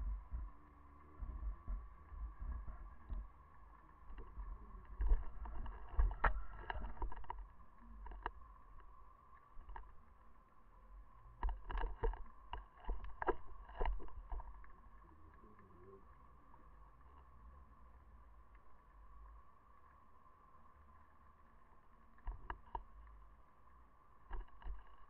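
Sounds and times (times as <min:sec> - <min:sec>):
underwater rumbling water movement: 0:00.0 - 0:20.0
faint high hum: 0:00.0 - 0:25.0
sharp knocks and clicks: 0:11.4 - 0:14.7, 0:24.3 - 0:25.0.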